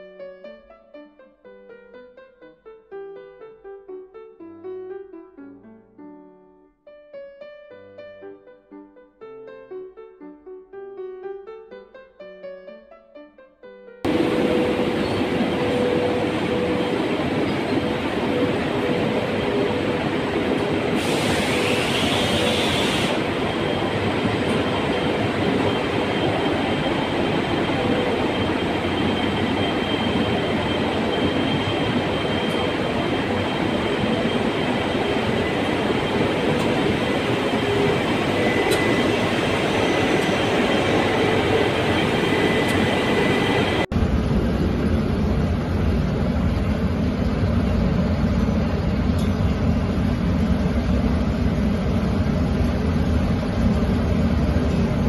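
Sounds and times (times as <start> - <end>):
industrial machinery noise: 14.1 - 55.0.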